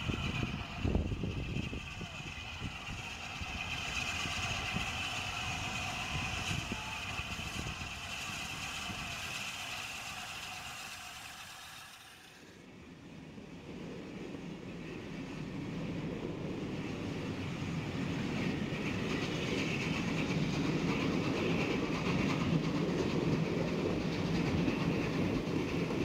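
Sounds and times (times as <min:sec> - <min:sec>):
high steam hiss: 0:00.0 - 0:12.6
steam locomotive running: 0:00.0 - 0:26.0.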